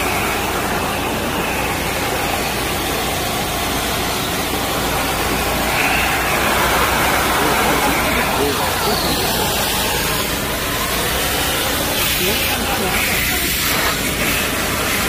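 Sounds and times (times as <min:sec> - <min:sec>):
industrial vacuum cleaner suction: 0:00.0 - 0:15.0.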